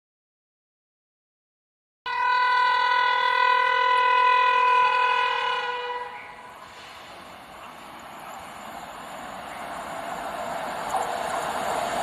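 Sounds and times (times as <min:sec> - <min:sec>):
locomotive horn blast: 0:02.1 - 0:06.6
train rumbling on rails: 0:02.4 - 0:12.0.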